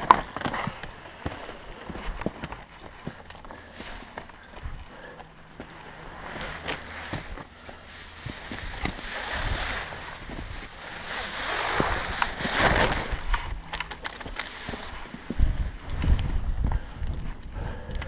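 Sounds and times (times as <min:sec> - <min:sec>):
climbing gear clicking: 0:00.0 - 0:09.0, 0:11.5 - 0:18.0.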